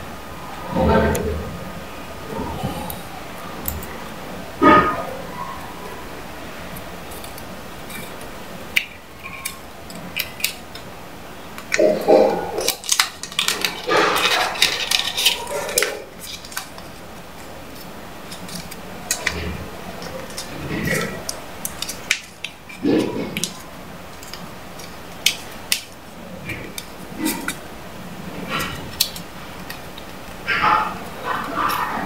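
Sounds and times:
banknote crinkling: 11.6 - 27.6.

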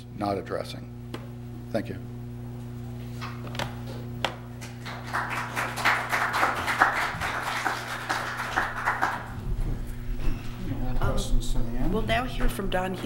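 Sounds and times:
low electrical hum: 0.0 - 13.0
audience applauding: 4.6 - 9.4.

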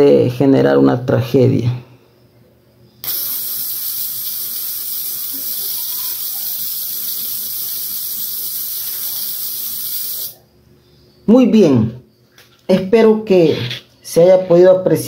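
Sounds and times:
electric arc hissing: 3.0 - 10.4.

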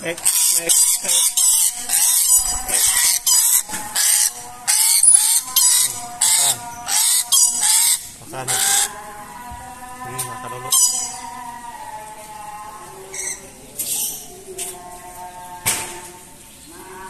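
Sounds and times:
parrot harsh screeches: 0.2 - 8.9, 10.7 - 11.2.

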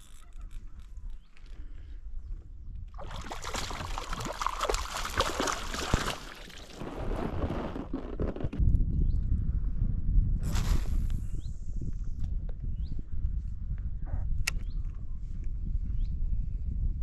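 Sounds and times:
water splashing around a canoe: 2.9 - 6.9.

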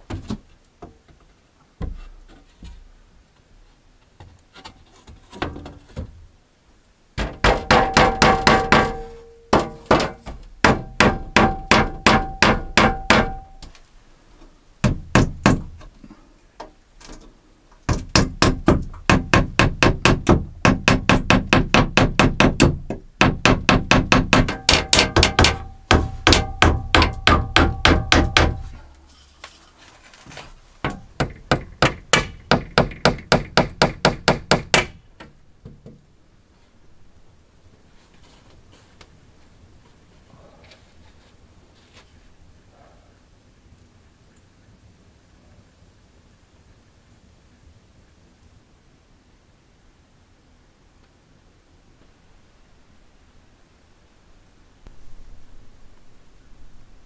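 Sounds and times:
hammer striking wooden frame: 7.2 - 13.7, 14.8 - 15.8, 17.9 - 28.8, 30.8 - 36.0.

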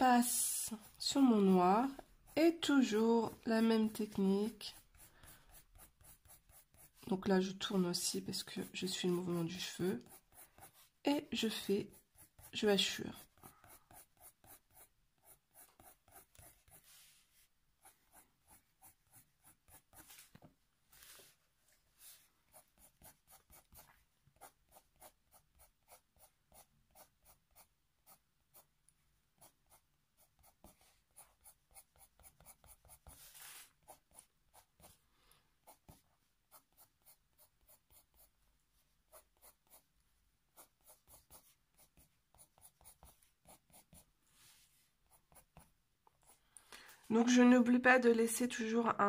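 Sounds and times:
pencil scratching on paper: 0.0 - 21.4, 22.0 - 28.8, 29.4 - 46.4.

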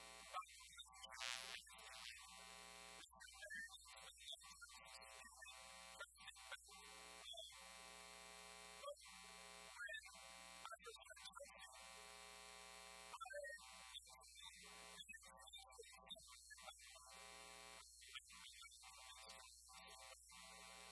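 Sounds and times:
faint electrical buzz: 1.1 - 3.0.

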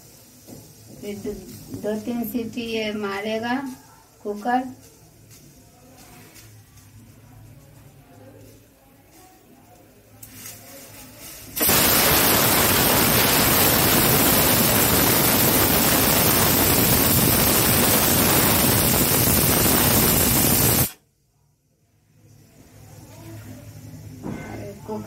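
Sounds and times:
pressure cooker steam whistling: 11.6 - 21.0.

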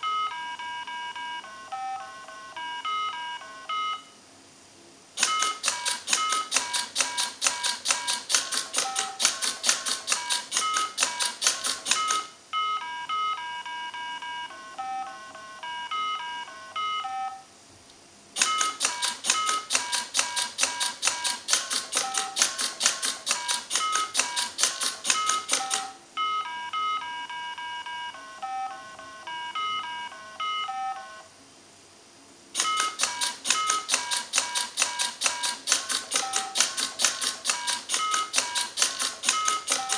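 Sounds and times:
electronic game tones: 0.0 - 4.2, 5.2 - 17.5, 18.4 - 31.3, 32.6 - 39.9
robot clicking rapidly: 5.2 - 12.3, 18.4 - 26.0, 32.6 - 39.9.

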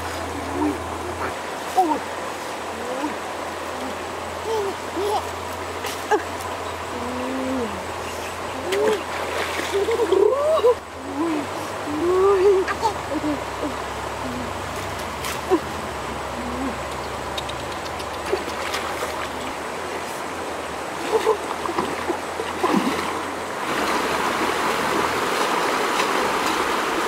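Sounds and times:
rocky stream running: 0.0 - 27.0
person wading through water: 8.0 - 16.9, 17.9 - 27.0.

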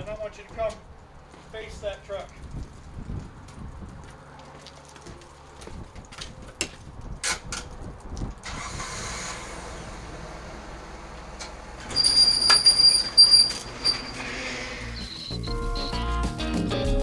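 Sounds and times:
diesel truck engine: 8.4 - 15.5.

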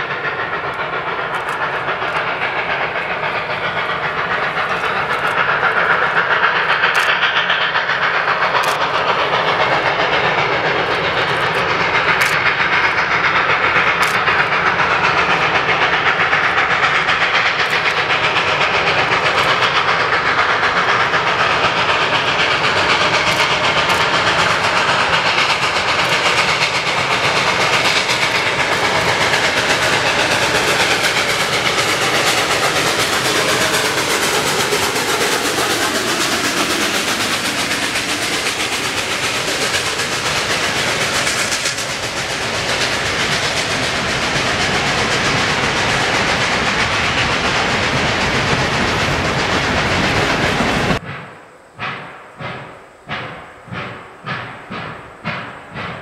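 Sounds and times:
steam locomotive exhaust: 0.0 - 56.0
sharp clicks: 0.6 - 31.1.

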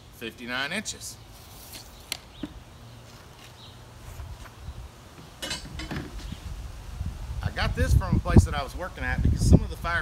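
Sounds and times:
wind rumble on microphone: 5.7 - 10.0.

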